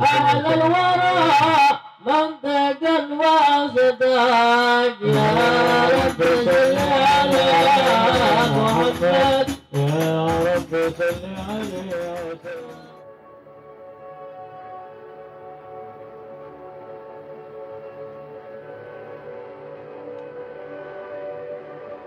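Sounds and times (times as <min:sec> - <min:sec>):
man chanting into a microphone: 0:00.0 - 0:13.0
group of voices: 0:05.0 - 0:10.0
frame drums beating: 0:05.1 - 0:13.0.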